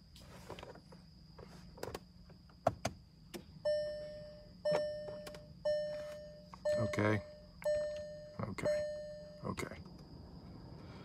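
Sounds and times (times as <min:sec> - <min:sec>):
car warning chime: 0:03.6 - 0:10.4
ignition clicks: 0:04.7 - 0:05.5.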